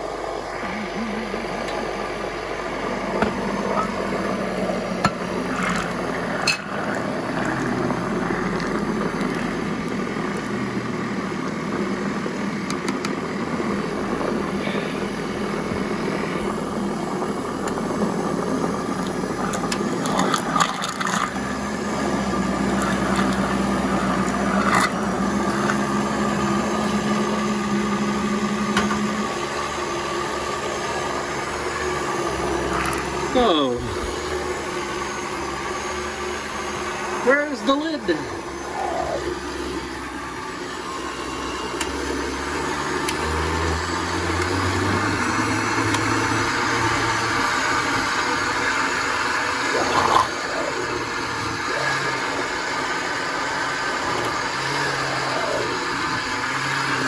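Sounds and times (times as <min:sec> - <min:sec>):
blender motor running: 0:00.0 - 0:57.0.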